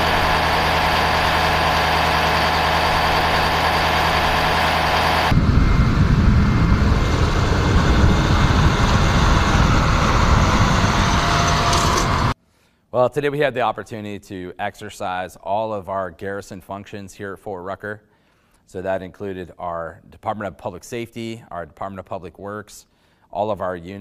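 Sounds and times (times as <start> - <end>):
engine idling: 0.0 - 12.4
gusty low rumble: 0.0 - 12.4.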